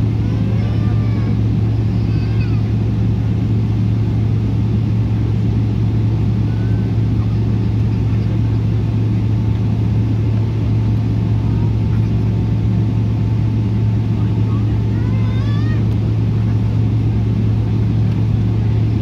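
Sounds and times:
airliner cabin drone: 0.0 - 19.0.

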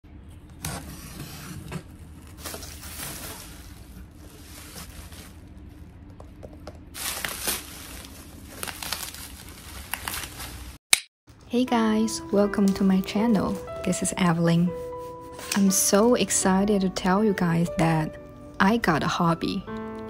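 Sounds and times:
bubble wrap rustling and crinkling: 0.7 - 6.0, 6.9 - 10.8.

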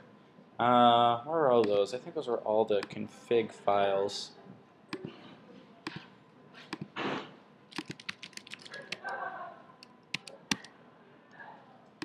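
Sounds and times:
typing on computer keyboard: 7.7 - 9.2, 10.1 - 10.7.

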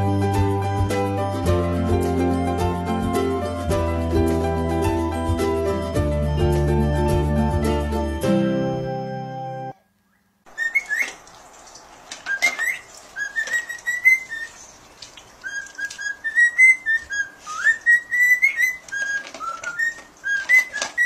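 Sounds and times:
cockatiel whistling: 10.1 - 11.2, 12.3 - 14.6, 15.4 - 21.0.

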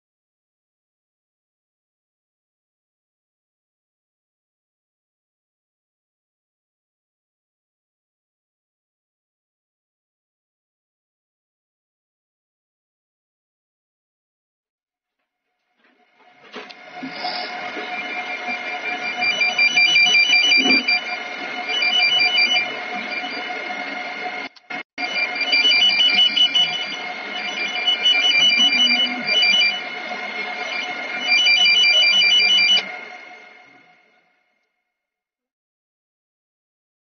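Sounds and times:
warbling electronic beep: 16.7 - 34.1.

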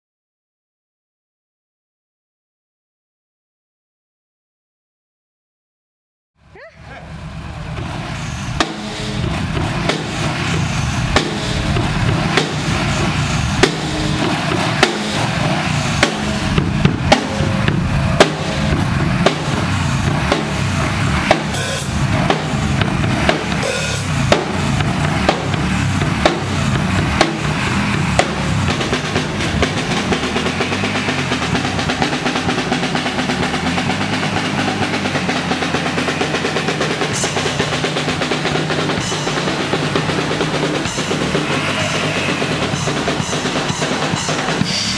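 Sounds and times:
drum kit beat: 6.6 - 44.9
cymbal crashes: 7.2 - 44.9.

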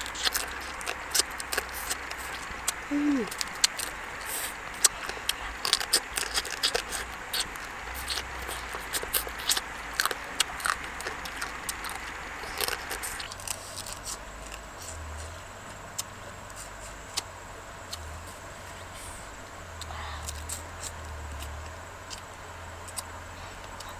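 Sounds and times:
crab shell cracking: 0.0 - 14.7.

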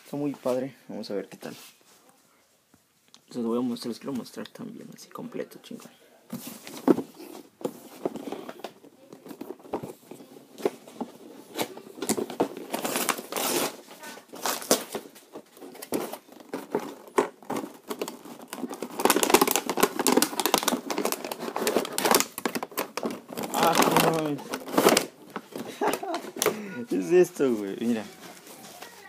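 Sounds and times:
packaging crinkling and rustling: 6.3 - 29.0.

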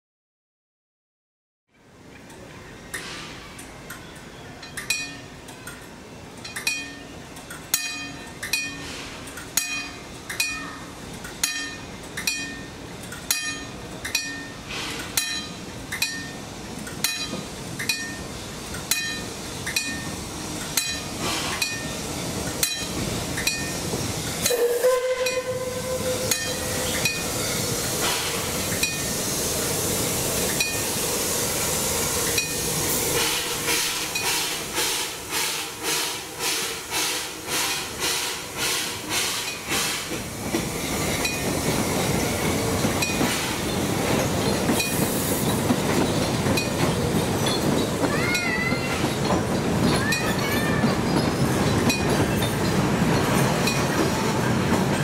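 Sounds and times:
steam hissing: 14.3 - 55.0
steam locomotive whistle: 24.4 - 29.8, 30.6 - 40.1.

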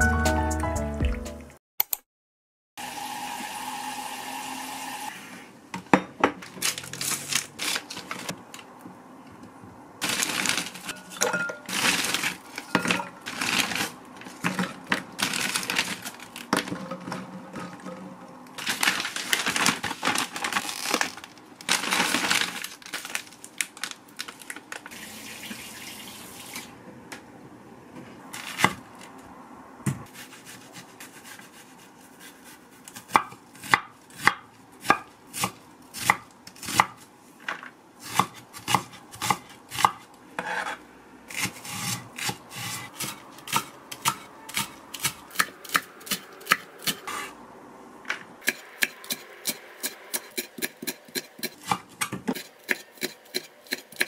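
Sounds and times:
kitchen bowls knocking and clinking: 5.8 - 6.5, 10.9 - 11.9, 12.6 - 13.3.

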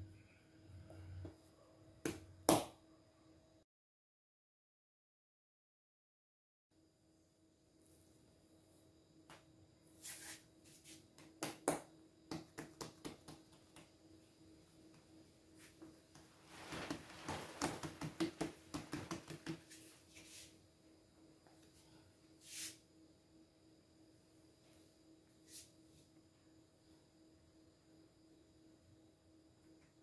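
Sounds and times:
hands tapping dough: 2.0 - 2.7, 11.1 - 14.0, 16.1 - 19.8.

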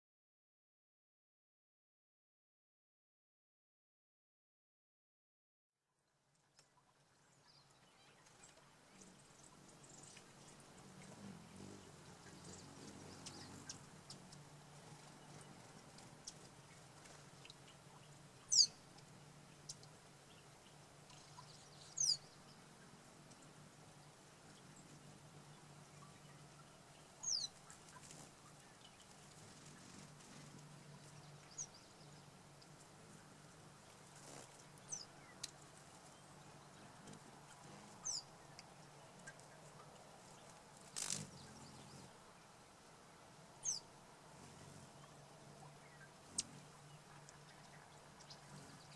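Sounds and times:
low steady hum: 5.9 - 48.9
fountain ticks: 6.4 - 21.6, 22.5 - 42.5
hummingbird twittering: 7.1 - 42.2, 43.6 - 48.9
high falling bird chirps: 7.4 - 19.0, 19.6 - 22.6, 24.4 - 32.3, 37.9 - 38.5, 43.6 - 43.9
flutter of wings: 8.2 - 20.0, 27.1 - 38.3, 39.2 - 42.2.

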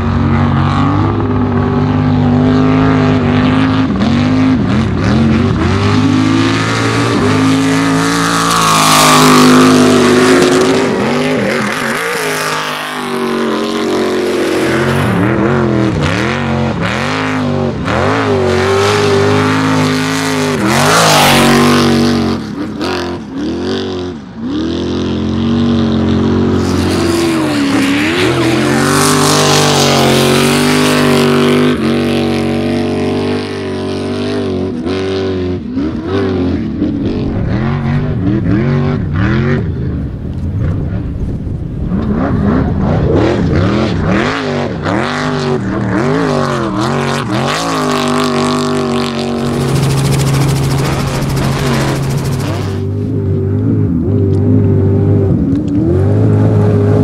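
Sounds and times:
truck engines revving hard: 0.0 - 41.2, 41.8 - 57.0.

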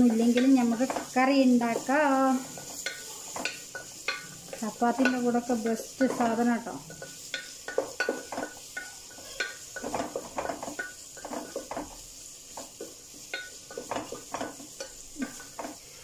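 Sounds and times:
onions sizzling in oil: 0.0 - 16.0
wooden spatula scraping a pot: 0.0 - 16.0.

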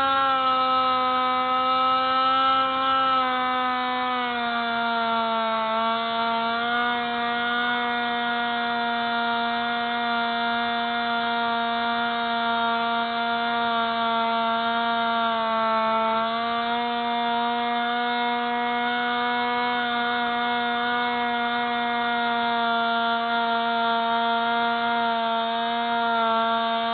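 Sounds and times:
model plane motor whine: 0.0 - 26.9.

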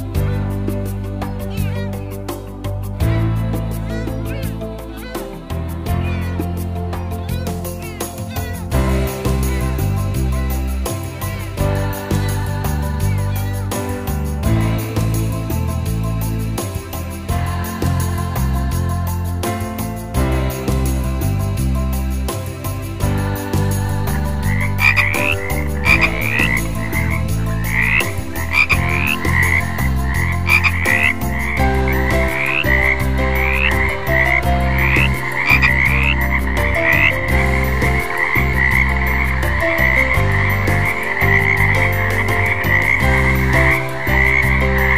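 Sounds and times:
frogs croaking: 23.2 - 44.9.

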